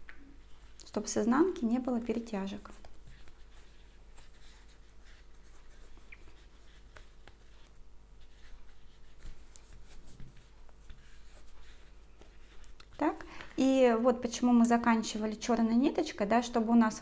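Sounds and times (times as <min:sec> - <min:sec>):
crochet hook scratching yarn: 0:00.4 - 0:13.0.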